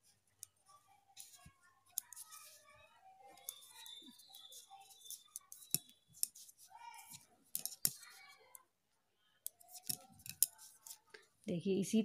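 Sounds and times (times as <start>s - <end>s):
knitting needles clicking: 0.3s - 0.6s, 1.2s - 2.6s, 3.2s - 8.6s, 9.4s - 11.2s.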